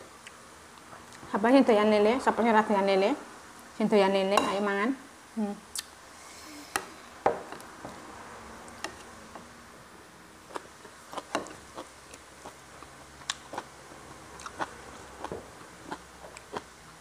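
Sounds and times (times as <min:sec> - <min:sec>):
lip smacks: 0:05.7 - 0:05.9
chewing: 0:14.3 - 0:16.7.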